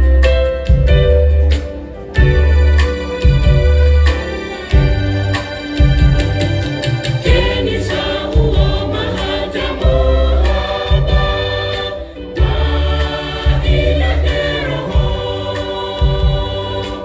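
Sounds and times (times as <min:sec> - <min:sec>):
pulsing bass beat and percussion: 0:00.0 - 0:17.0
choir singing gospel: 0:04.2 - 0:17.0.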